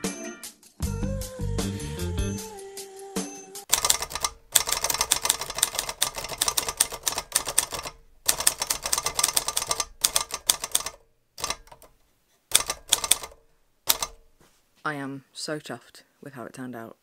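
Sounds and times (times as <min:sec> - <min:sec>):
manual typewriter typing: 0:03.7 - 0:14.3.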